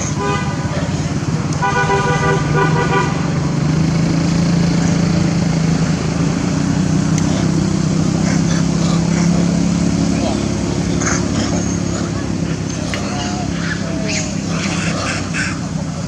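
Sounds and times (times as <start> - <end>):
vehicle horn: 0.0 - 0.8, 1.6 - 3.4
vehicle engine droning: 0.0 - 16.0.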